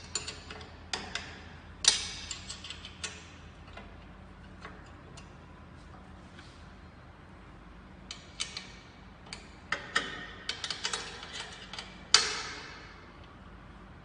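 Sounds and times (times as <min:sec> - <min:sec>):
metal clicks and knocks: 0:08.1 - 0:12.8.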